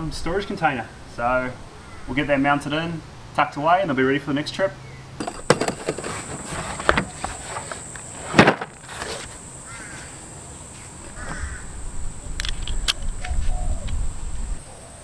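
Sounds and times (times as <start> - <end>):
bird calls: 1.6 - 2.2, 9.6 - 15.0
steel sockets clinking in tool case: 5.2 - 6.4
high insect drone: 5.2 - 15.0.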